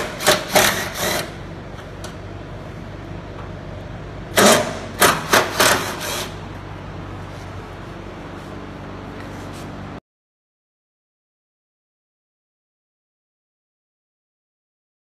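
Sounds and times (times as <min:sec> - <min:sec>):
cordless driver bursts: 0:00.0 - 0:01.4
steady shop hum: 0:00.0 - 0:10.0.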